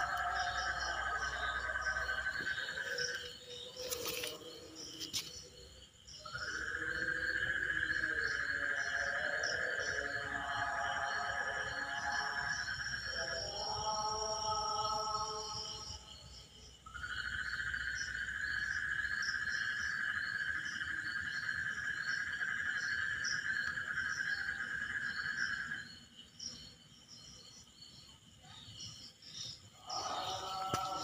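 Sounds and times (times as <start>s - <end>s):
crickets chirping: 0.0s - 31.0s
loud steady insect trill: 0.0s - 31.0s.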